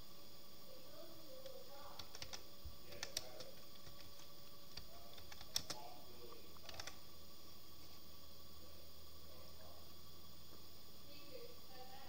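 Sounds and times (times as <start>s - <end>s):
computer keyboard typing: 1.9s - 5.9s, 6.6s - 7.0s.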